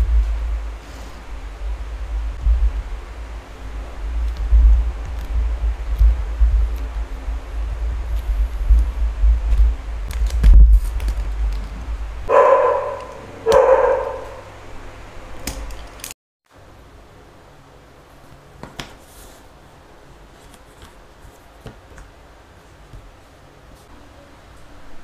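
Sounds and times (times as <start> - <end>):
low rumble of handling: 0.0 - 16.1
dog barking: 12.3 - 14.6.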